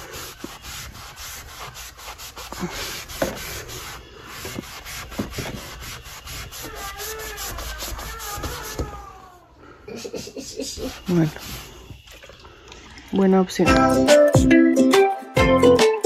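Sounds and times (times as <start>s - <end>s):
sponge scrubbing a door: 0.0s - 9.2s, 10.0s - 12.0s.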